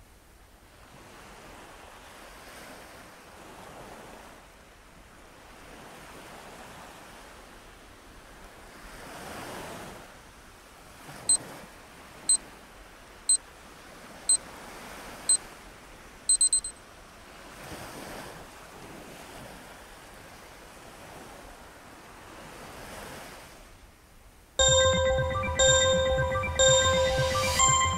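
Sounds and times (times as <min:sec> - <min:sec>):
high electronic beeps: 0:16.3 - 0:16.7, 0:24.6 - 0:27.9
ocean surf washing in: 0:24.6 - 0:27.9.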